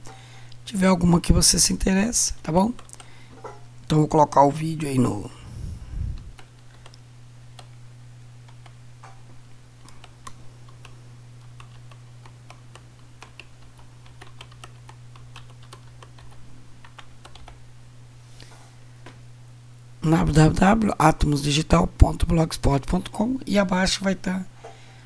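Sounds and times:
steady low hum: 0:00.0 - 0:25.0
keyboard keys clicking: 0:09.9 - 0:17.6.

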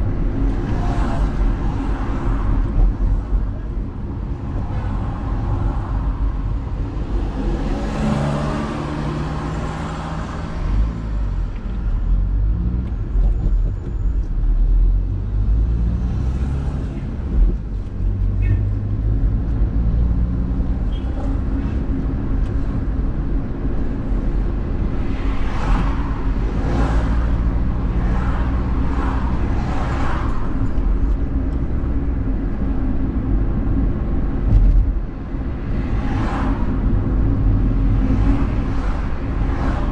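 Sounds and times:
car engine and road rumble: 0:00.0 - 0:39.9.

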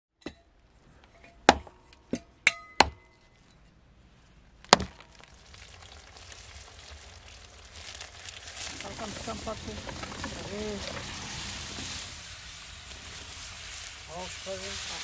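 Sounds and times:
meat sizzling in hot oil: 0:05.3 - 0:15.0.

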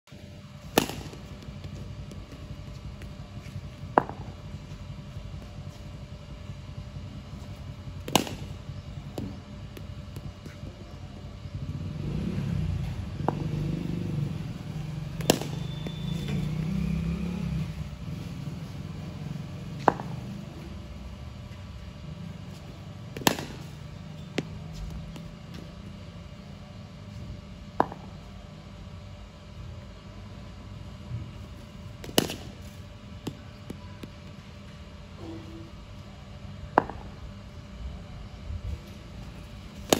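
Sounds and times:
cricket bat striking ball: 0:00.6 - 0:02.2, 0:03.8 - 0:04.4, 0:08.0 - 0:10.2, 0:15.1 - 0:16.6, 0:19.8 - 0:20.4, 0:23.1 - 0:23.8, 0:27.8 - 0:28.2, 0:32.0 - 0:32.6, 0:36.7 - 0:37.2.

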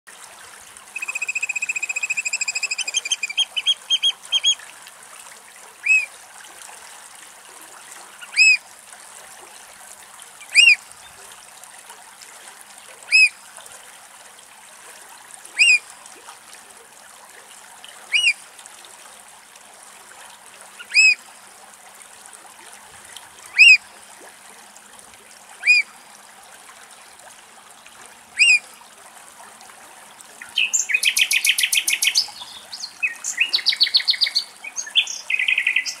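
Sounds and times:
oystercatcher calls: 0:01.0 - 0:04.6, 0:05.8 - 0:06.1, 0:10.5 - 0:10.8, 0:13.1 - 0:13.3, 0:18.1 - 0:18.3, 0:20.9 - 0:21.2, 0:23.6 - 0:23.8, 0:25.6 - 0:25.8, 0:28.4 - 0:28.6.

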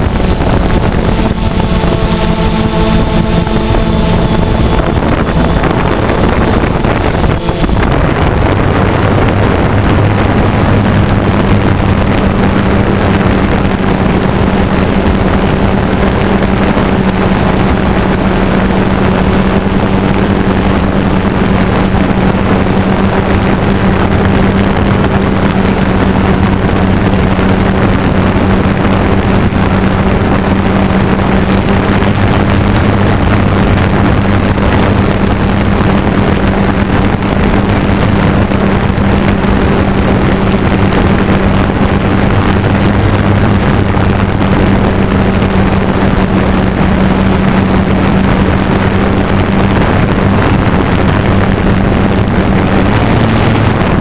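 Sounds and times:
hovercraft motor and fan running: 0:00.0 - 0:54.0
wind on microphone: 0:00.0 - 0:54.0.

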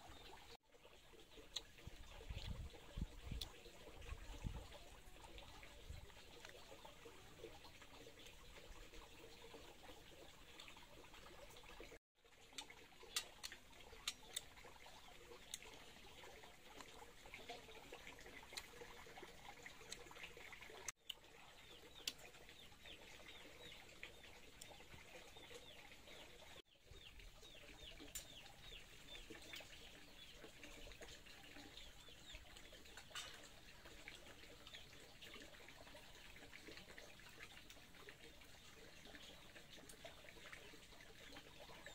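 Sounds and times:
small birds chirping: 0:12.6 - 0:41.9.

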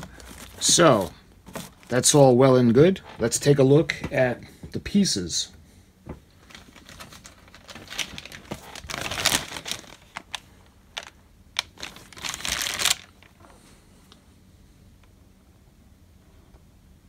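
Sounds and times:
plastic bag crinkling: 0:00.0 - 0:02.3, 0:06.3 - 0:13.4.

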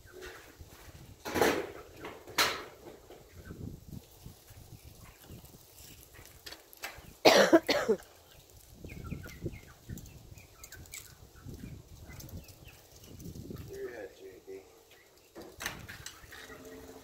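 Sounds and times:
person coughing: 0:07.2 - 0:08.0.

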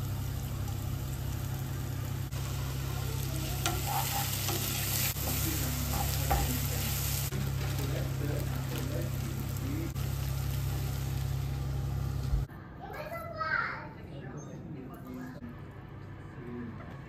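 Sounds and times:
vegetables sizzling in a wok: 0:00.0 - 0:12.5
steady low hum: 0:00.0 - 0:12.8
spatula scraping and knocking pan: 0:03.5 - 0:06.8.

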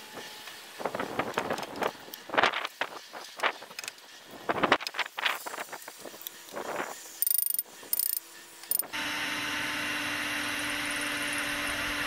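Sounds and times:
ratchet-like clicking: 0:07.2 - 0:08.9.

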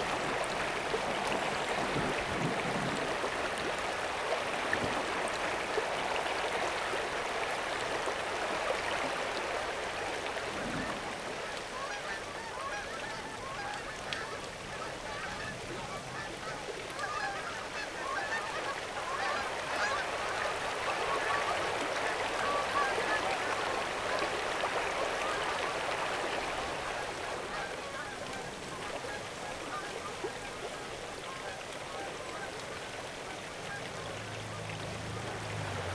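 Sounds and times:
river water rushing: 0:00.0 - 0:35.9
geese honking: 0:11.4 - 0:23.7, 0:26.7 - 0:32.8, 0:33.6 - 0:34.1.

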